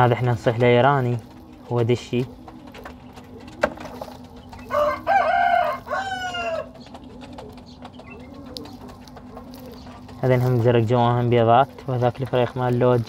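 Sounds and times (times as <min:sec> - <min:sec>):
pigeons cooing: 0:00.0 - 0:13.0
rooster crowing: 0:04.7 - 0:06.8.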